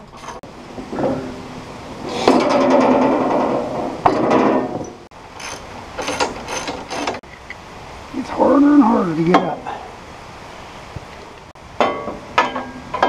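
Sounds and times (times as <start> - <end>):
metal rattling and scraping: 2.1 - 7.2.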